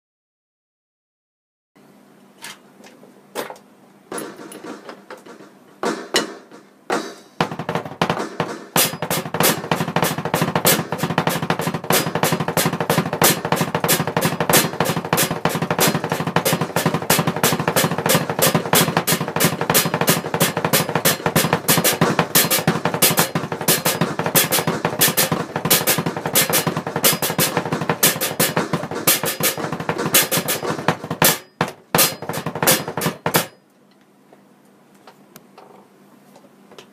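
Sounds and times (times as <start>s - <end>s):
electronic drum kit played: 4.1s - 33.6s
bass drum pedal double strokes: 4.6s - 33.5s.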